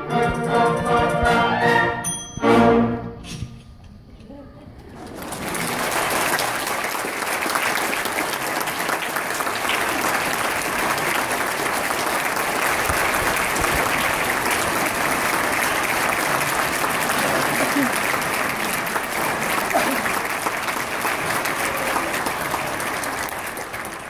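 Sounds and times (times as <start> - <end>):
audience applauding: 4.9 - 24.0.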